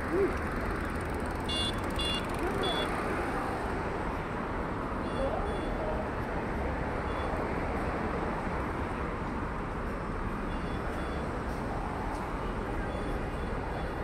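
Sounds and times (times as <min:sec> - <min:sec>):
road traffic hum: 0:00.0 - 0:14.0.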